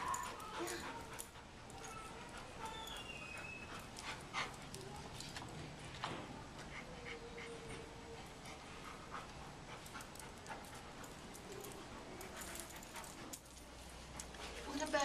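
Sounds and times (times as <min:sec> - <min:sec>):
dog panting softly: 0:00.0 - 0:05.5, 0:06.1 - 0:15.0
paws clicking on hard floor: 0:09.1 - 0:15.0.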